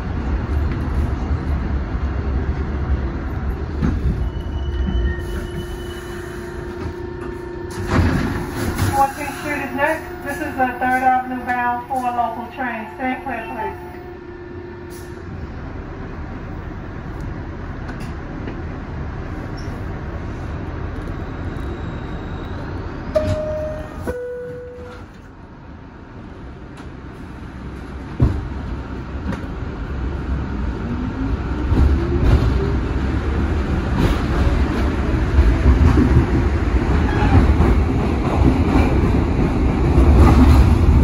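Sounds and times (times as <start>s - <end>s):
subway train running noise: 0.0s - 41.0s
train starting clunk: 3.8s - 12.8s, 23.1s - 25.3s.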